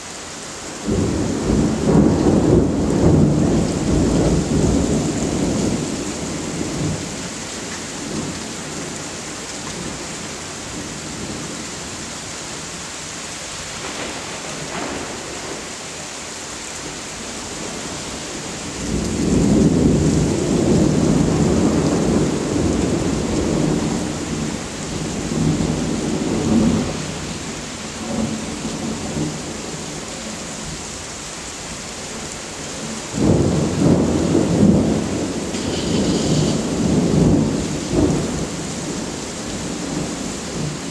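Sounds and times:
steady rain: 0.0s - 40.9s
rolling thunder: 0.8s - 7.3s, 13.6s - 16.1s, 16.8s - 30.0s, 33.1s - 40.9s.

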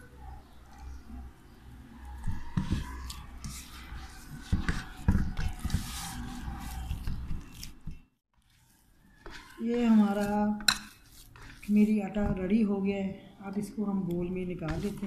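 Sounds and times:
hands kneading dough: 2.0s - 12.9s, 14.0s - 15.0s.

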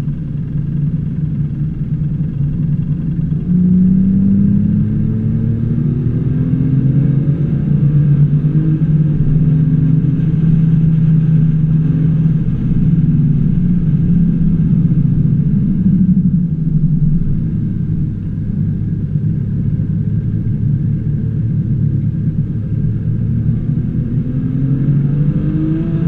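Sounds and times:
car engine accelerating: 0.0s - 26.0s.

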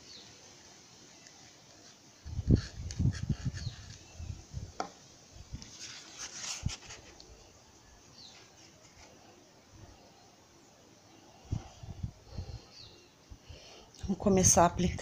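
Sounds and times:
foam sheets rustling: 5.5s - 7.4s.

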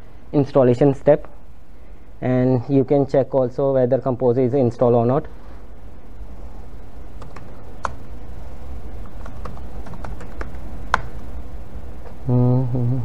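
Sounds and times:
steady low hum: 0.0s - 13.0s
laptop keyboard keystrokes: 7.2s - 8.0s, 9.0s - 11.2s.

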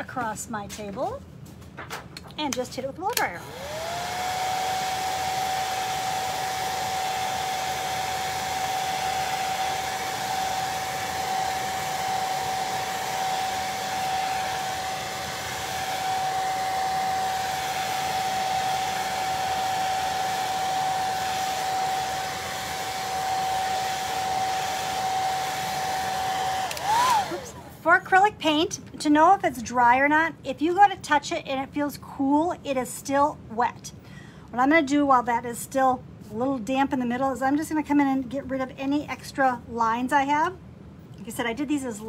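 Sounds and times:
hair dryer running: 3.1s - 27.9s.

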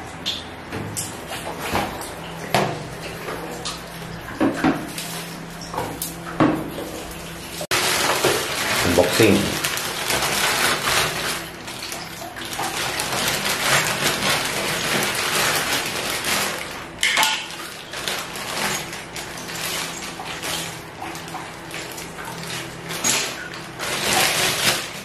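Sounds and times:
plastic bags crinkling: 7.6s - 25.0s.

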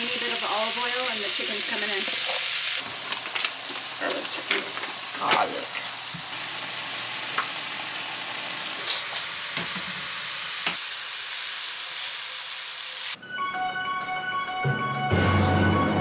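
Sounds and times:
food sizzling in a frying pan: 0.0s - 13.2s
soft music: 13.2s - 16.0s.

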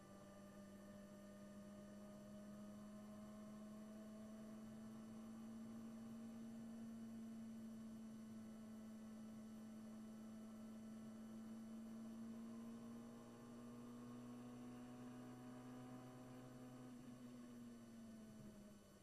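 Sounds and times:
muffled race car engine accelerating: 11.9s - 18.6s.

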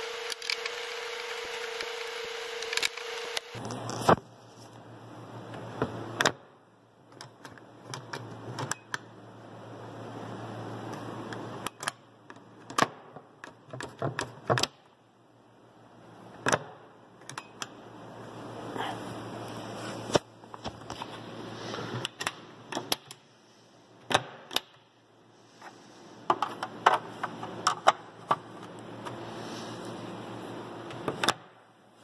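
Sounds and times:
screwdriver turning screw: 0.1s - 3.6s.

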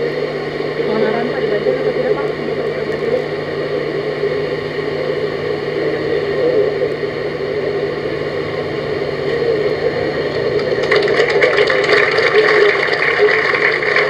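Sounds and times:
whirring with low hum: 0.0s - 14.0s
dense crackling clicks: 10.2s - 14.0s.

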